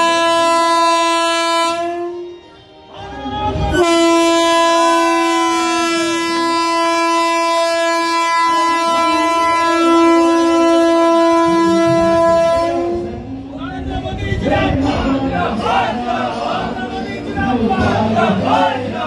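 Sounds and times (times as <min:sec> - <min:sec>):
train horn blast: 0:00.0 - 0:02.6, 0:03.5 - 0:13.5.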